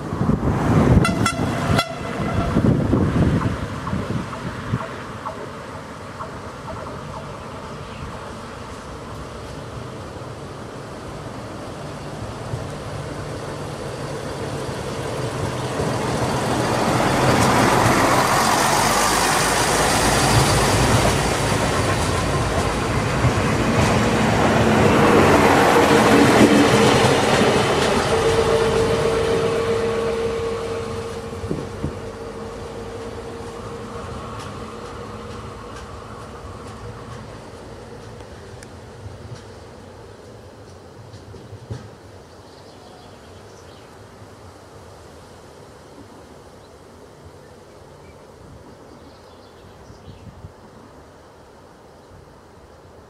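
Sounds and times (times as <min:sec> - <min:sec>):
diesel train passing: 0:00.0 - 0:50.0.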